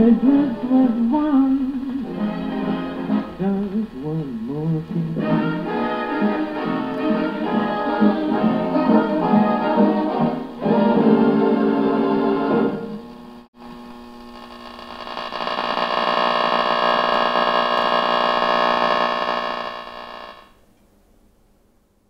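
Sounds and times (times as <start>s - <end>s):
big band music through radio speaker: 0.0s - 11.4s.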